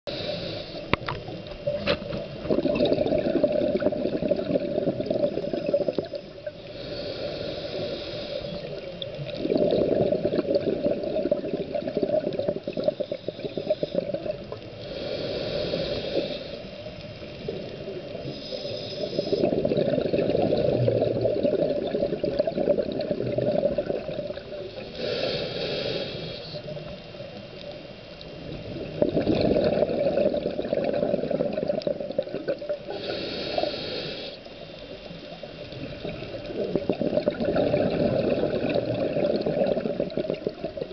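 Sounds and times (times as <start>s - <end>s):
regulator hissing inhale: 0.1s - 1.1s, 5.3s - 9.2s, 12.7s - 19.7s, 24.5s - 26.8s, 32.8s - 35.4s
bubbling exhale underwater: 1.7s - 16.5s, 17.4s - 26.3s, 28.6s - 34.1s, 35.8s - 40.9s.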